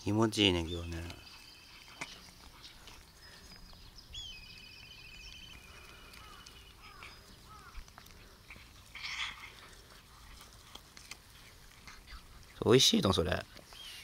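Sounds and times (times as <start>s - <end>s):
birds singing with trills: 0.0s - 10.0s, 11.4s - 14.0s
faint outdoor background: 0.0s - 14.0s
down-slurred bird chirps: 0.1s - 7.8s.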